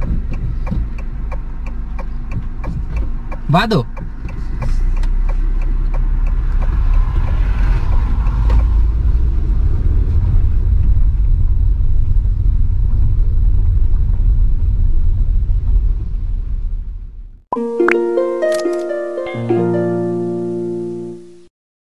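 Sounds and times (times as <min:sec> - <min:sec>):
tyres on dirt track: 0:00.0 - 0:17.4
car driving low rumble: 0:00.0 - 0:17.5.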